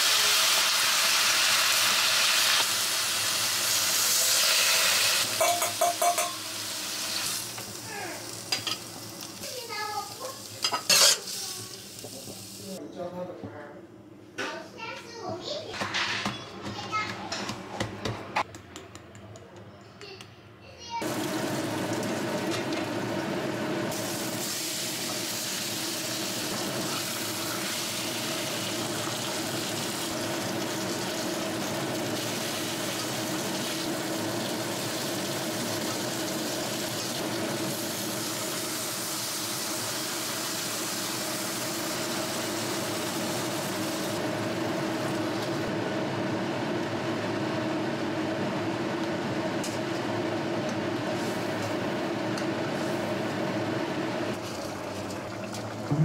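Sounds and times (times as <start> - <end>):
fish sizzling in oil: 0.0 - 12.8, 23.8 - 44.2.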